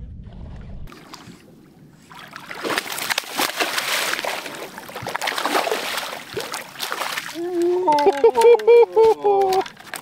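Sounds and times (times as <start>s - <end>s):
fish thrashing and splashing: 2.1s - 10.0s.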